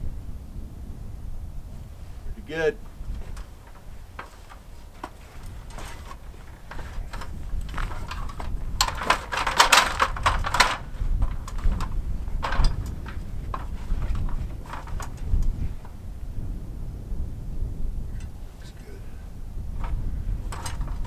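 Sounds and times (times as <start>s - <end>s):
wind rumble on microphone: 0.0s - 21.0s
feet knocking on ladder rungs: 3.1s - 15.9s
metal stepladder clattering: 3.1s - 16.0s, 19.8s - 21.0s.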